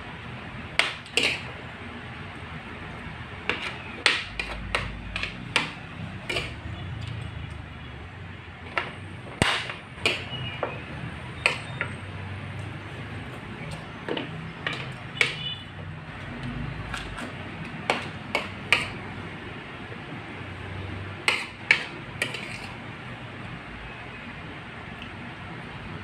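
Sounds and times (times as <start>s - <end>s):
cutlery clinking on a plate: 0.8s - 1.5s, 3.5s - 6.6s, 8.7s - 10.8s, 11.4s - 11.9s, 13.7s - 15.4s, 17.9s - 19.0s, 21.3s - 22.8s.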